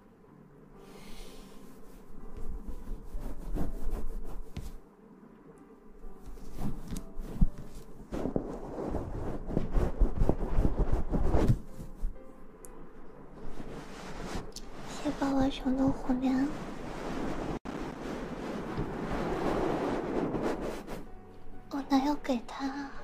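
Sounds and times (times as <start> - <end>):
fluffy puff rubbing on microphone: 0.8 - 4.8, 6.3 - 12.2, 13.4 - 21.2.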